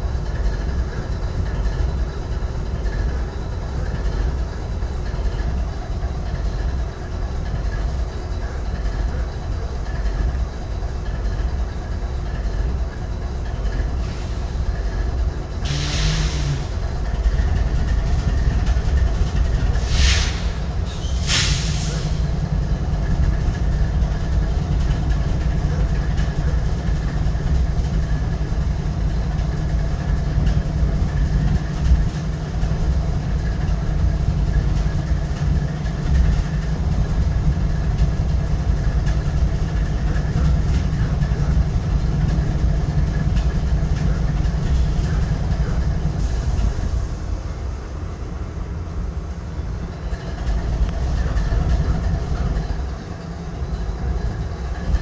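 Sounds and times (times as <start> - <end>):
locomotive diesel engine idling: 0.0 - 55.0
brief hisses: 19.8 - 22.2.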